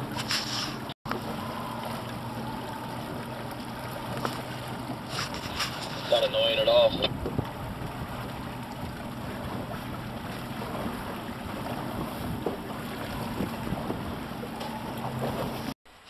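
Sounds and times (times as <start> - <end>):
outboard engine running: 0.0 - 15.8
water washing against hull: 0.0 - 16.0
wind on microphone: 7.0 - 15.6.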